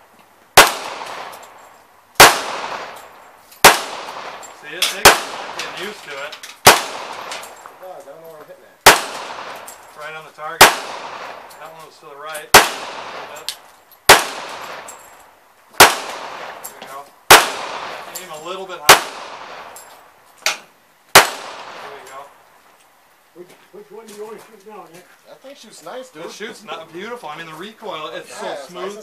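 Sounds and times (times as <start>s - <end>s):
handgun shots with echo: 2.2s - 5.8s, 6.6s - 7.5s, 8.8s - 9.8s, 10.6s - 11.4s, 12.5s - 13.4s, 14.1s - 15.0s, 15.8s - 16.6s, 17.3s - 18.0s.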